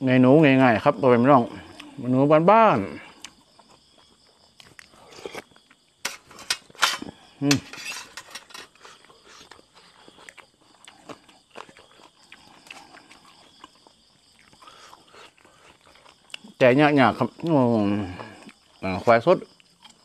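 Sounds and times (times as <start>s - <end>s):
insects trilling: 0.0s - 20.0s
wet chewing and mouth clicks: 3.1s - 6.0s, 8.8s - 16.6s, 18.2s - 18.8s, 19.5s - 20.0s.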